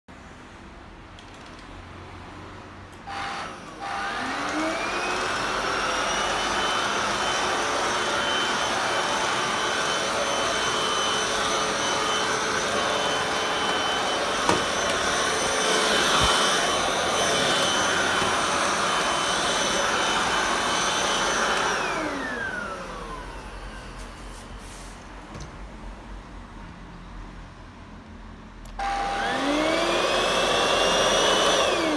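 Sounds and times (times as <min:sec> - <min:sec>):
vacuum cleaner motor whine: 0:03.0 - 0:24.1, 0:28.7 - 0:31.9
floor head on hard floor: 0:13.4 - 0:18.4.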